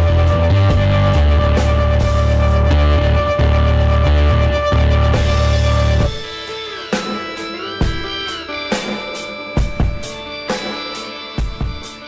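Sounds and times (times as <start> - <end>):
guitar chords: 0.0 - 12.0
drum beat: 0.3 - 3.1, 4.9 - 12.0.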